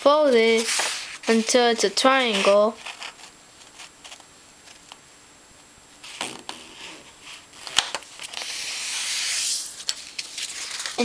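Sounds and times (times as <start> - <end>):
scratchy paper rustle: 0.2 - 4.8, 6.0 - 11.0
paper rustling: 0.3 - 4.8, 7.0 - 11.0.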